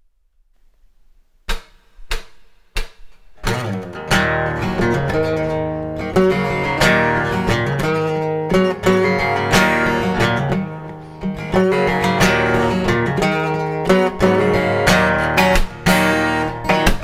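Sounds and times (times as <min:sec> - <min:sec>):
sharp percussive knocks: 0:01.5 - 0:03.6
acoustic guitar strumming chords: 0:01.5 - 0:17.0.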